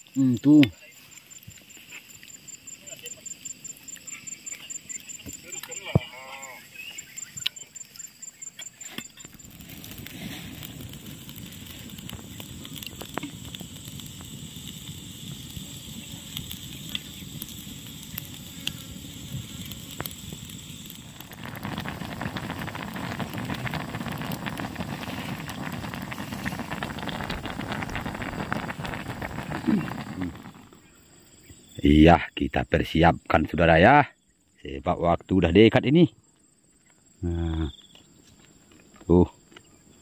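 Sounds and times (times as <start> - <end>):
burning wood popping: 0.0 - 32.5, 36.9 - 39.8
curry bubbling in a wok: 8.0 - 30.8.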